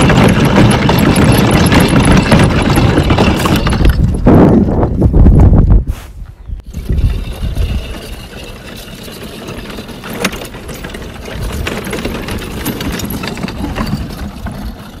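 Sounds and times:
cart wheels rattling on dirt: 0:00.0 - 0:05.4, 0:06.6 - 0:15.0
low wind rumble: 0:00.0 - 0:08.3.

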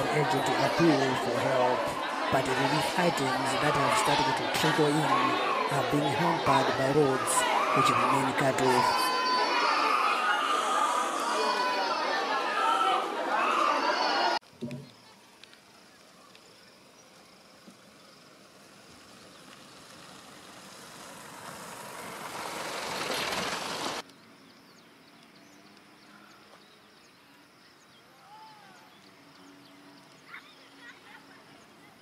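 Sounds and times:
motor vehicle approaching: 0:14.8 - 0:26.7.

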